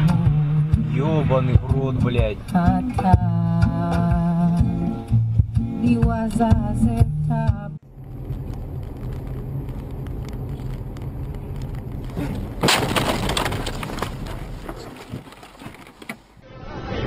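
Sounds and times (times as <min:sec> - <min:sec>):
car engine and road noise: 0:00.0 - 0:16.4
loud crash with cracking: 0:12.0 - 0:16.0.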